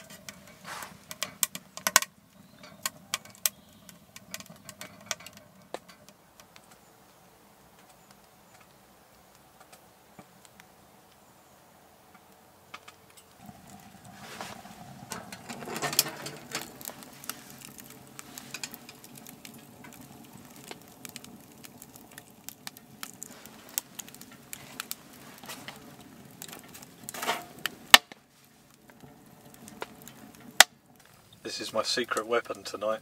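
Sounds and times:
log knocking in firebox: 0:00.0 - 0:06.8, 0:12.7 - 0:31.2
wood fire crackling and popping: 0:00.0 - 0:33.0
metal stove door clank: 0:15.1 - 0:16.7.

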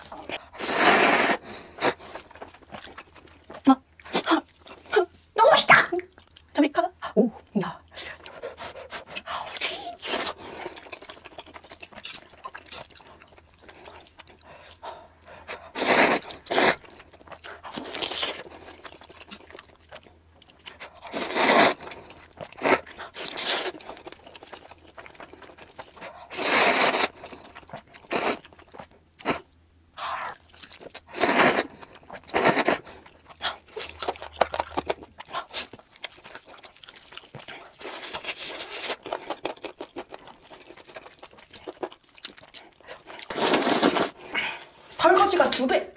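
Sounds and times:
biting and chewing food: 0:01.6 - 0:04.9, 0:07.9 - 0:26.4, 0:30.0 - 0:45.0.

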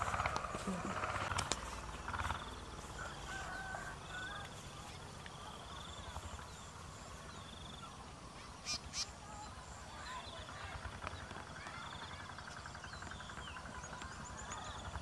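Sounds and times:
steady low rumble: 0:00.0 - 0:08.3
birds chirping: 0:00.0 - 0:15.0.

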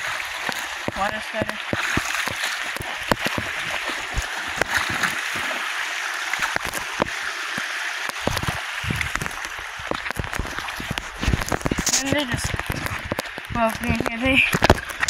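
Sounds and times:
creek water running: 0:00.0 - 0:15.0
footsteps on rock: 0:00.5 - 0:05.5, 0:08.1 - 0:15.0
low rumbles: 0:08.3 - 0:15.0.

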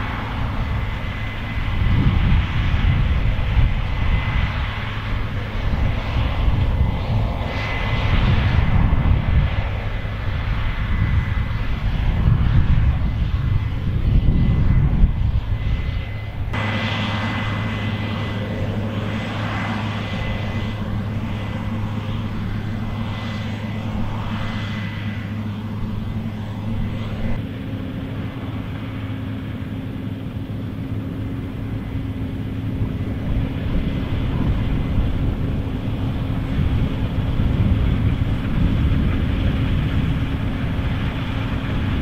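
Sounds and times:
combine harvester running: 0:00.0 - 0:42.0.

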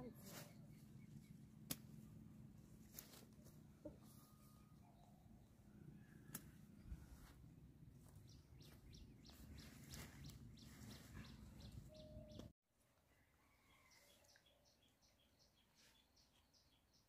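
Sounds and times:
plant stalks rustling and crackling: 0:02.6 - 0:03.6.

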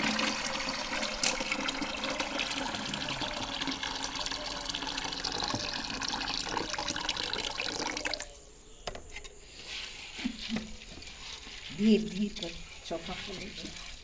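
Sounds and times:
water drips and splashes: 0:00.0 - 0:08.3
water pouring into tub: 0:00.0 - 0:08.3.

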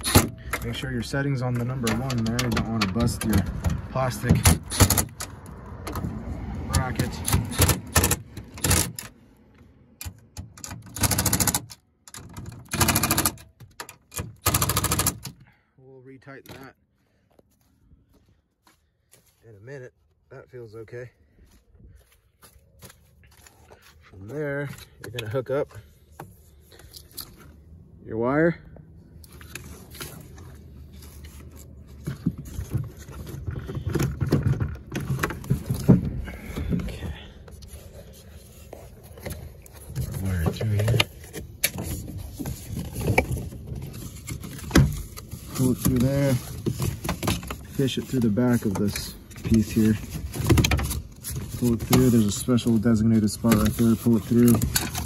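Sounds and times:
low rumbling bumps: 0:00.4 - 0:08.6, 0:28.7 - 0:52.4
impact driver rattling: 0:07.2 - 0:09.0, 0:10.4 - 0:15.4.

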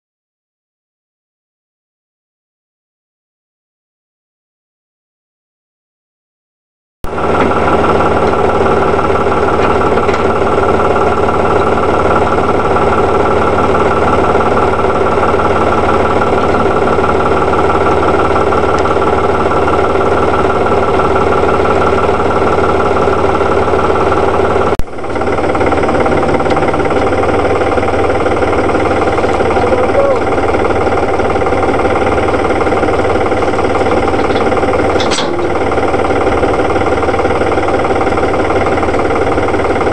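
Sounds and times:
tractor engine idling: 0:07.1 - 0:39.9.

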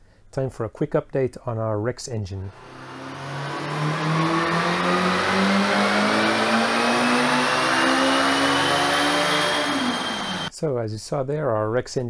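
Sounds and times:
racing engine revving: 0:02.5 - 0:10.5.

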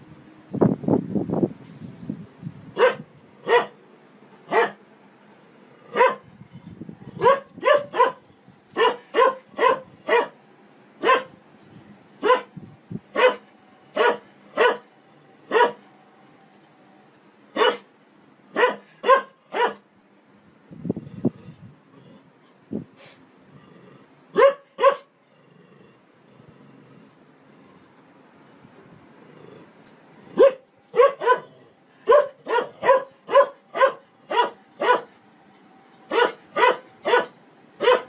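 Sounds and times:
dog barking: 0:02.8 - 0:03.8, 0:04.5 - 0:04.8, 0:05.9 - 0:06.3, 0:07.2 - 0:10.4, 0:11.0 - 0:11.4, 0:12.2 - 0:12.5, 0:13.1 - 0:14.9, 0:15.5 - 0:15.8, 0:17.6 - 0:17.9, 0:18.5 - 0:19.8, 0:24.3 - 0:25.1, 0:30.3 - 0:35.1, 0:36.1 - 0:38.0.

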